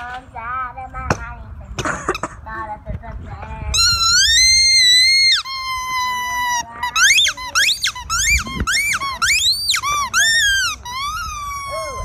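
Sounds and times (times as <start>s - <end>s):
rubber squeaky toy squealing: 3.7s - 12.0s.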